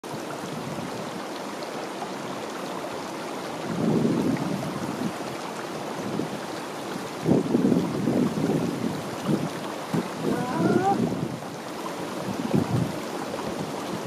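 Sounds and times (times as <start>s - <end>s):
stream water rushing: 0.0s - 14.0s
wind buffeting microphone: 3.6s - 14.0s.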